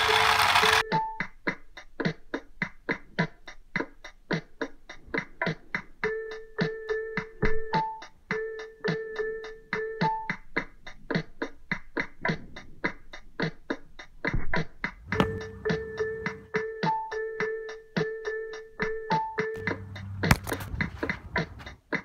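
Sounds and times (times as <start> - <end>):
held electric keyboard notes: 0.0 - 1.3, 6.0 - 10.6, 15.1 - 21.6
background music with steady beat: 0.0 - 22.0.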